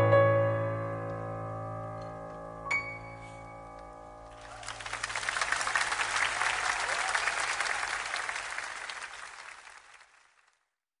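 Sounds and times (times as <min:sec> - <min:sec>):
audience applauding: 0:04.3 - 0:10.8.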